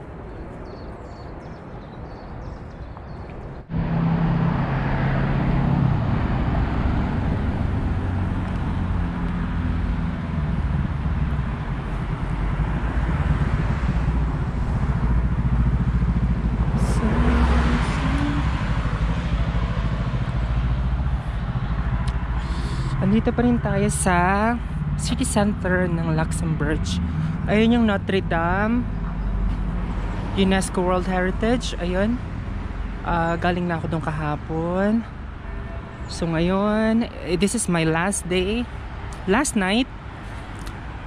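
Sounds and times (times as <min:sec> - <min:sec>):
cars driving past: 0:03.0 - 0:41.0
rising engine note: 0:03.6 - 0:30.4.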